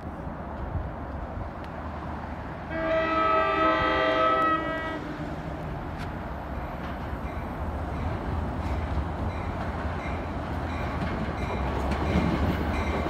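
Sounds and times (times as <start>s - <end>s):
train rumble: 0.0s - 13.0s
train air horn blast: 2.7s - 5.2s.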